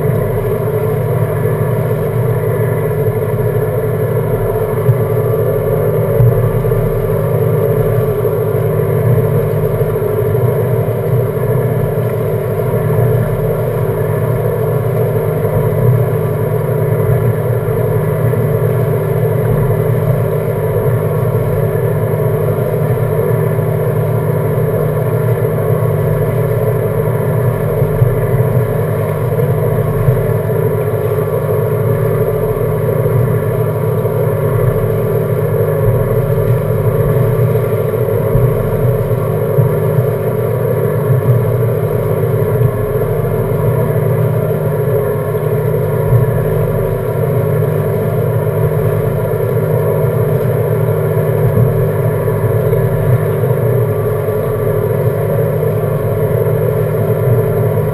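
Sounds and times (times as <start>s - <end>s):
outboard engine idling: 0.0s - 57.9s
water washing past hull: 0.0s - 57.9s.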